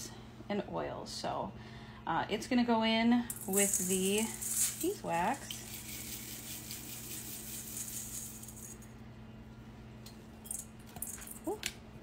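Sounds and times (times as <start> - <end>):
wax pellets pouring into bowl: 3.3 - 8.9.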